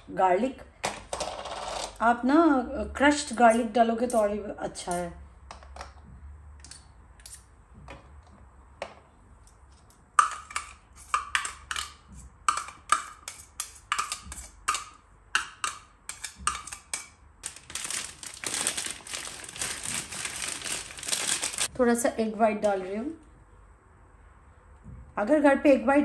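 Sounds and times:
spoon tapping on container: 12.5s - 17.1s
plastic bag crinkling: 17.4s - 21.7s.

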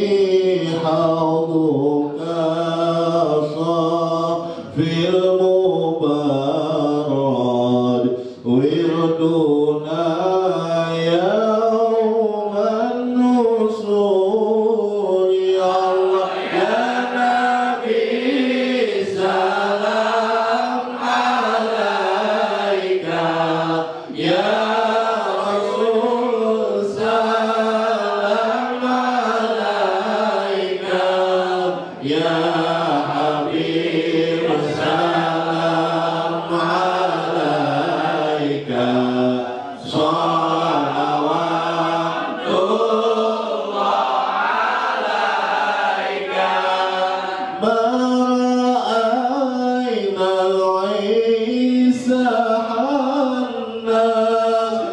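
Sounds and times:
man singing devotional chant: 0.0s - 43.9s, 46.2s - 54.9s
short breaths: 8.2s - 8.4s.

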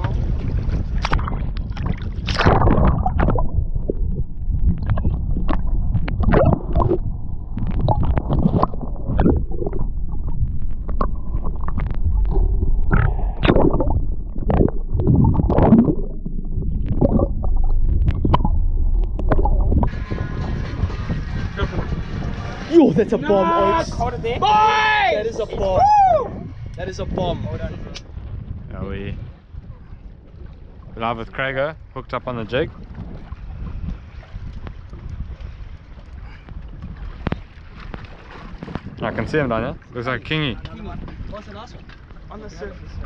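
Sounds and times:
underwater clicks and knocks: 0.0s - 19.9s, 36.4s - 39.0s
muffled underwater water gurgling: 0.0s - 23.4s.

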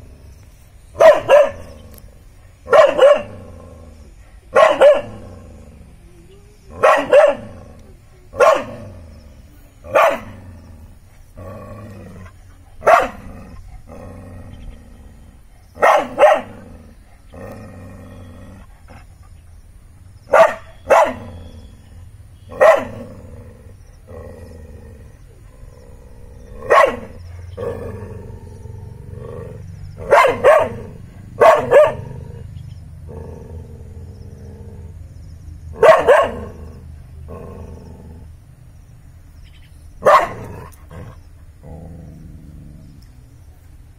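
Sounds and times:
dog barking: 1.0s - 1.7s, 2.7s - 3.4s, 4.5s - 5.2s, 6.8s - 7.6s, 8.4s - 8.8s, 9.9s - 10.4s, 12.8s - 13.2s, 15.8s - 16.6s, 20.3s - 21.4s, 22.5s - 23.1s, 26.6s - 27.3s, 30.0s - 32.3s, 35.8s - 36.6s, 40.0s - 40.5s
dog growling: 5.1s - 19.3s, 22.8s - 35.0s, 36.3s - 38.4s, 40.3s - 43.1s.

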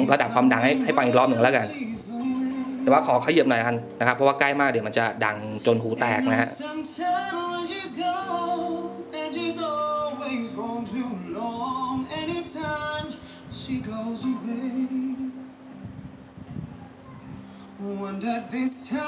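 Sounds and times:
song playing through a speaker: 0.0s - 19.0s.

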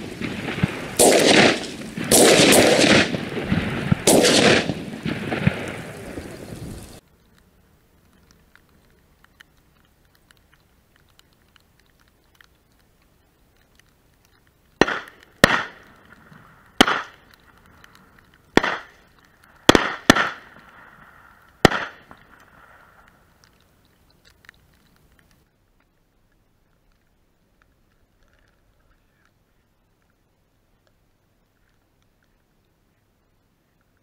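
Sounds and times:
shotgun shots: 0.0s - 5.9s, 14.8s - 15.8s, 16.8s - 17.2s, 18.6s - 19.0s, 19.7s - 20.6s, 21.6s - 22.2s.

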